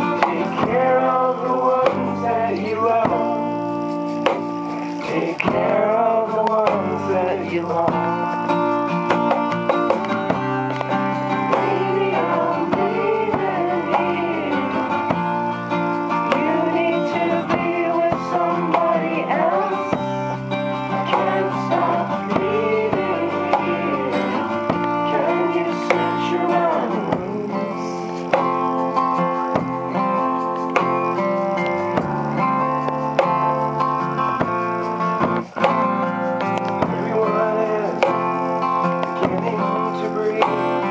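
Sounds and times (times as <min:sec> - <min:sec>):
man singing: 0:00.0 - 0:03.8, 0:04.9 - 0:08.5, 0:11.5 - 0:15.4, 0:16.2 - 0:20.3, 0:20.9 - 0:28.4, 0:36.8 - 0:40.9
acoustic guitar strumming: 0:00.0 - 0:40.9.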